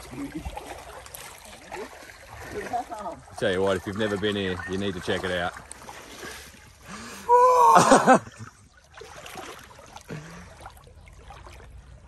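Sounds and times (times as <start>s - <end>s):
creek water flowing: 0.0s - 12.0s
man yelling: 7.3s - 8.1s.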